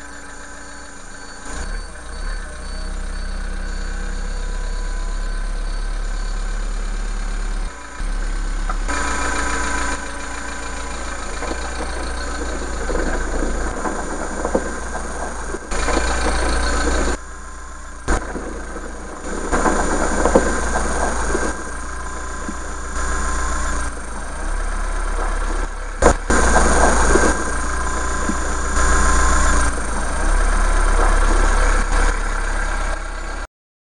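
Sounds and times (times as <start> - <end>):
tractor diesel engine running: 0.0 - 33.5.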